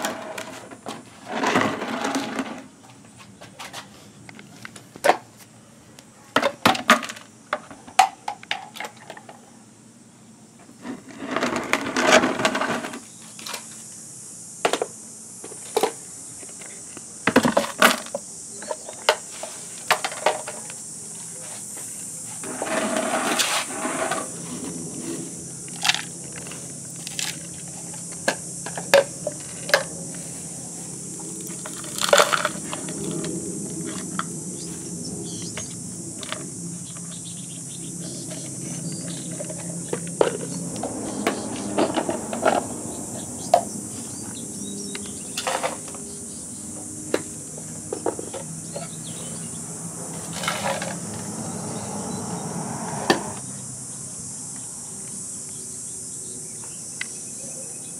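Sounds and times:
plastic bins knocking and rattling: 0:00.0 - 0:02.7, 0:17.2 - 0:19.2
insects chirping: 0:00.0 - 0:57.9.

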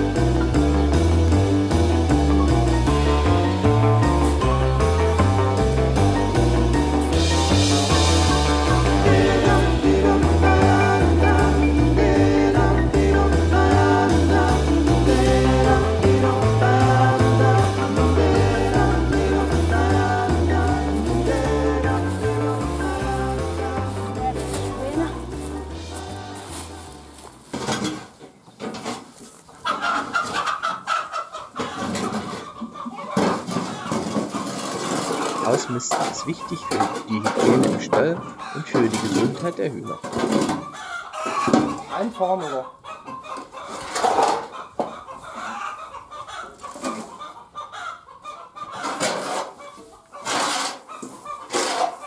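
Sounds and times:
chickens clucking: 0:06.1 - 0:52.0
shovel scraping bedding: 0:23.6 - 0:29.4, 0:50.2 - 0:52.0
bedding tipped into metal wheelbarrow: 0:27.5 - 0:29.1.

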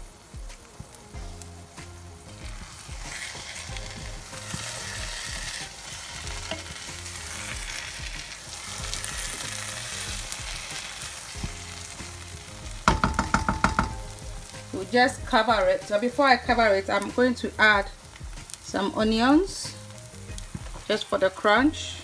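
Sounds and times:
stew sizzling in a pan: 0:00.0 - 0:22.0
spatula stirring in pan: 0:01.1 - 0:17.1.

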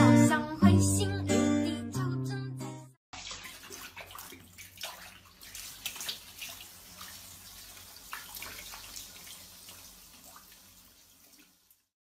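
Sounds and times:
water running and splashing: 0:03.1 - 0:12.0
water drips: 0:03.2 - 0:11.9.

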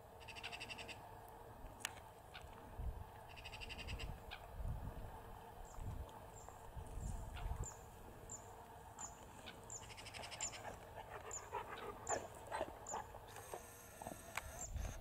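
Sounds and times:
faint animal calls: 0:00.2 - 0:01.0, 0:03.3 - 0:04.5, 0:09.4 - 0:15.0.

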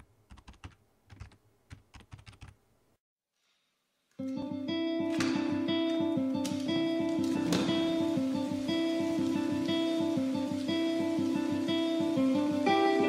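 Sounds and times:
computer keyboard typing: 0:00.0 - 0:02.6
plucked guitar music: 0:04.2 - 0:13.0.

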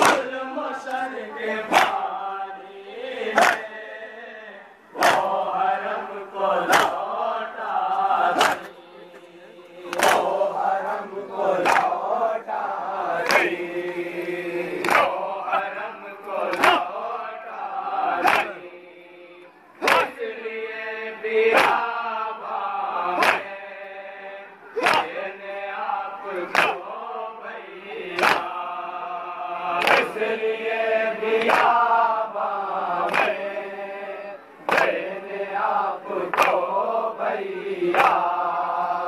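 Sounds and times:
hands slapping chests: 0:00.0 - 0:00.3, 0:01.7 - 0:02.1, 0:03.3 - 0:03.7, 0:05.0 - 0:05.4, 0:06.6 - 0:07.1, 0:08.3 - 0:08.7, 0:09.9 - 0:10.4, 0:11.6 - 0:12.0, 0:13.1 - 0:13.6, 0:14.8 - 0:15.2, 0:16.5 - 0:16.9, 0:18.2 - 0:18.6, 0:19.8 - 0:20.2, 0:21.5 - 0:21.8, 0:23.1 - 0:23.5, 0:24.8 - 0:25.2, 0:26.4 - 0:26.8, 0:28.1 - 0:28.6, 0:29.7 - 0:30.2, 0:31.4 - 0:31.8, 0:33.0 - 0:33.4, 0:34.7 - 0:35.0, 0:36.2 - 0:36.7
men chanting together: 0:00.0 - 0:39.0.

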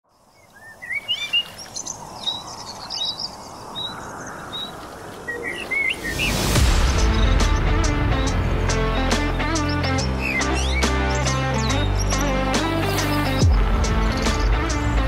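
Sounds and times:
birds chirping and singing: 0:00.2 - 0:15.0
rising whoosh: 0:03.9 - 0:08.4.

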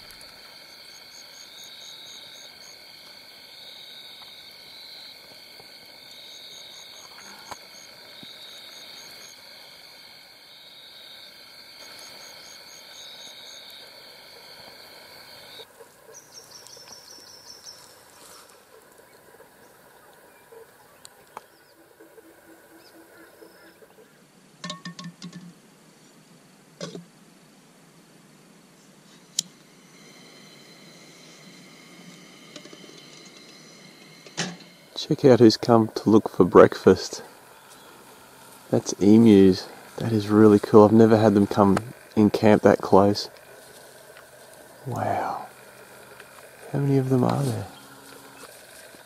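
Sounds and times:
crickets and night insects chorus: 0:00.0 - 0:24.3, 0:28.8 - 0:49.0
low croaks: 0:29.4 - 0:49.0.

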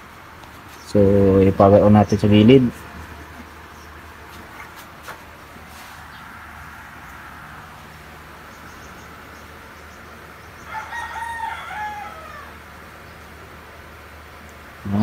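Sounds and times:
steady low hum: 0:00.0 - 0:15.0
rooster crowing: 0:10.5 - 0:12.9.

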